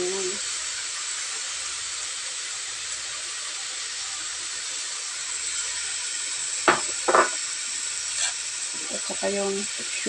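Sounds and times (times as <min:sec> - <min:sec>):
food sizzling in frying pan: 0:00.0 - 0:10.0
sharp knock: 0:06.7 - 0:07.4.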